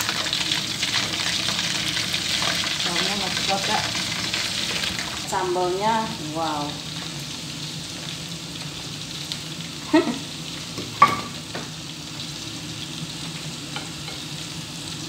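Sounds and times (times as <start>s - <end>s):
hot oil sizzling: 0.0s - 15.0s
pan and spatula clanking: 10.8s - 11.7s, 13.7s - 14.3s.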